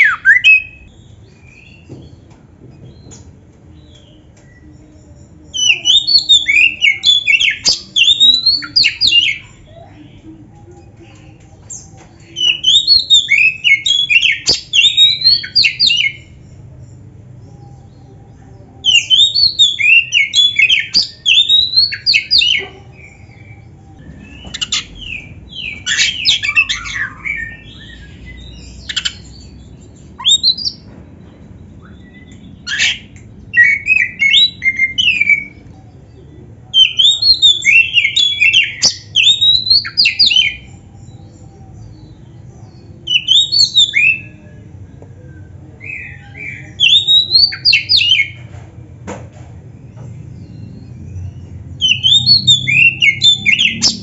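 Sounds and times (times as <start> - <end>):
bird singing: 0.0 - 48.5, 49.6 - 54.0.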